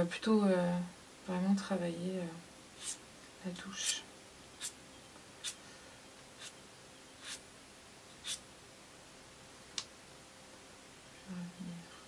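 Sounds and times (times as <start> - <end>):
pastel scratching on paper: 2.8 - 3.0, 5.4 - 5.6, 6.4 - 6.6, 7.2 - 7.4, 8.2 - 8.4.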